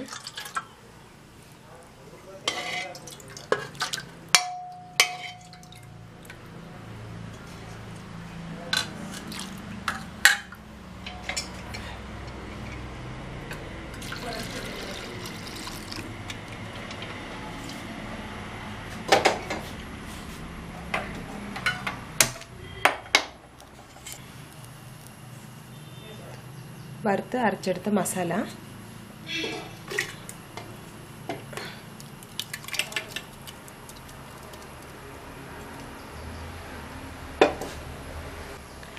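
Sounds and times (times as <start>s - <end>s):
lentils pouring: 14.0s - 16.0s.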